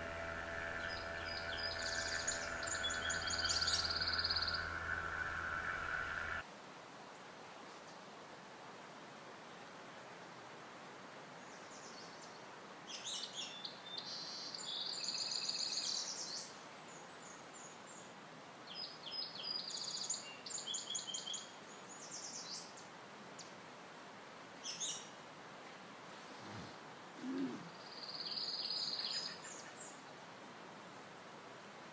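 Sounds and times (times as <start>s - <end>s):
bird singing trilling phrases: 0.0s - 6.4s
faint steady hiss: 0.0s - 31.9s.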